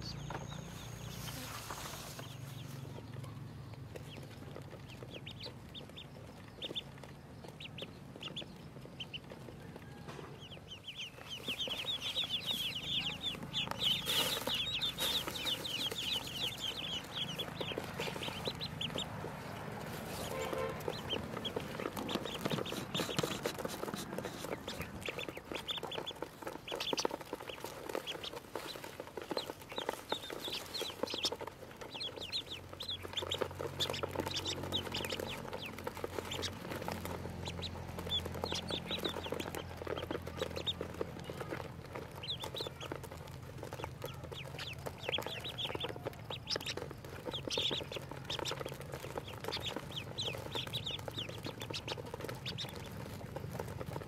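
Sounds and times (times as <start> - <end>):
ducklings peeping: 0.0 - 54.0.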